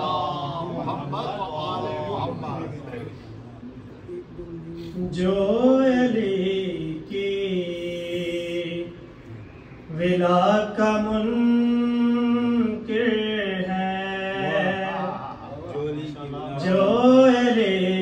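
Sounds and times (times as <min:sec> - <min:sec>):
man chanting: 0:04.5 - 0:09.1, 0:09.9 - 0:18.0.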